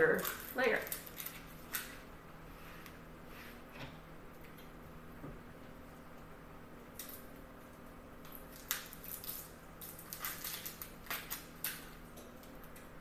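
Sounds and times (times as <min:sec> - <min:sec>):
onion skin crackling: 0:00.0 - 0:02.1, 0:06.9 - 0:12.9.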